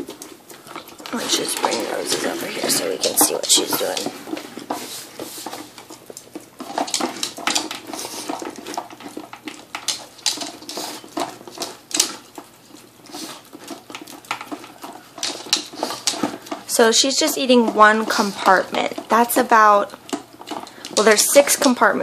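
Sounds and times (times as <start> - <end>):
dog teeth knocking plastic bowl: 13.3 - 21.8.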